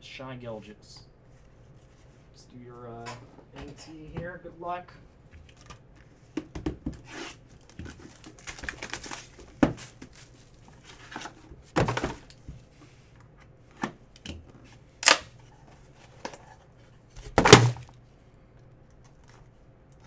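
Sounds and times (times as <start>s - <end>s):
plastic wrap crinkling: 7.5s - 11.3s.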